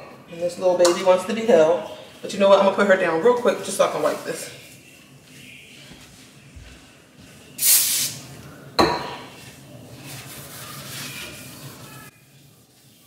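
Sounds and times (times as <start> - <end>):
paper towel rubbing: 3.4 - 8.4, 9.3 - 13.0
aerosol spray can hiss: 7.6 - 8.2.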